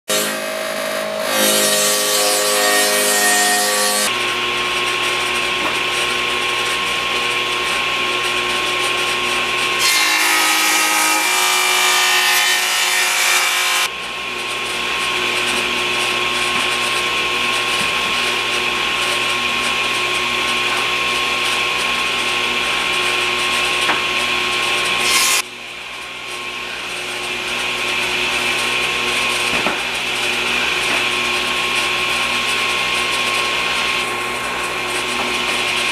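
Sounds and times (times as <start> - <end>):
saw blade cutting wood: 0.1 - 4.4, 7.6 - 13.9, 24.8 - 25.5
table saw motor hum: 0.1 - 35.9.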